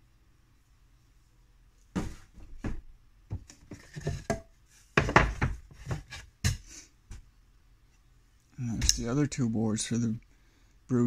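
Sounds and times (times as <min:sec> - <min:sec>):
wooden boards knocking and scraping: 0:02.0 - 0:06.7.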